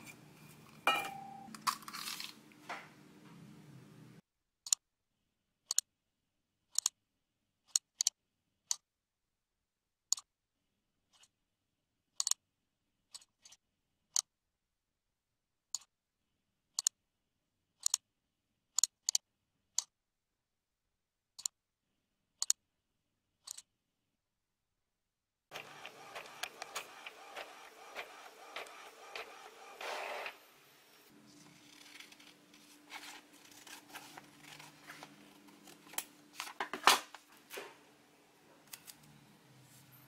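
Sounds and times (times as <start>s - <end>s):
computer mouse clicks: 5.7s - 5.9s, 6.7s - 7.0s, 7.7s - 8.8s, 12.2s - 12.4s, 16.8s - 17.0s, 17.8s - 18.0s, 21.4s - 21.6s, 22.4s - 22.6s, 23.4s - 23.7s, 25.6s - 29.7s.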